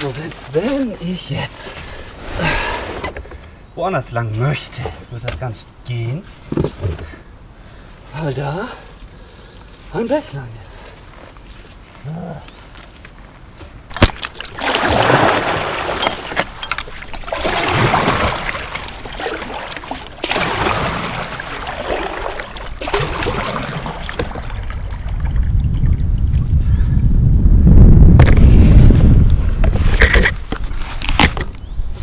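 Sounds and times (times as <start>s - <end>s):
paddle splashing in water: 14.0s - 25.6s.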